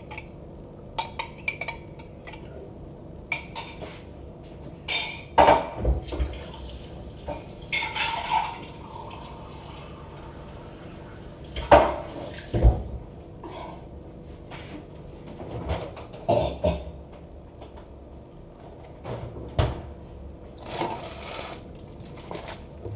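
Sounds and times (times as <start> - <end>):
dishes clinking on counter: 4.9 - 5.9.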